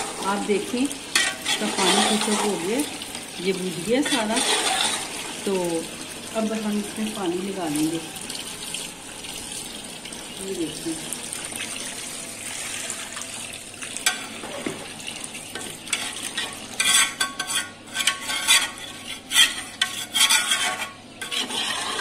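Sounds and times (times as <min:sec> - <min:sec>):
steady sizzle: 0:00.0 - 0:22.0
metal ladle scraping a pot: 0:01.1 - 0:02.9, 0:03.9 - 0:05.3, 0:15.9 - 0:22.0.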